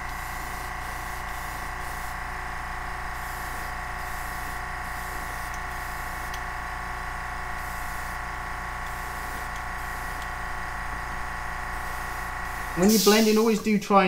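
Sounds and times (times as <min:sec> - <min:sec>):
droning hum with held tones: 0:00.0 - 0:14.0
airbrush air hiss: 0:11.8 - 0:13.7.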